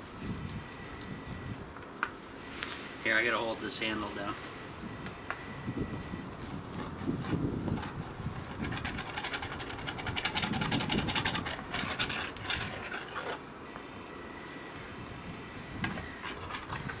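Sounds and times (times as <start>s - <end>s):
metal utensil scraping a pan: 6.8s - 13.4s, 15.9s - 17.0s.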